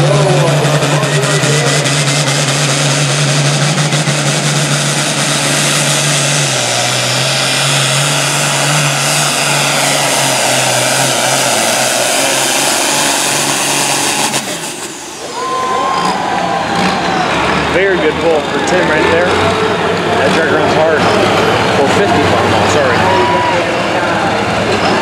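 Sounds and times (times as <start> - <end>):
tractor engine at full throttle: 0.0 - 25.0.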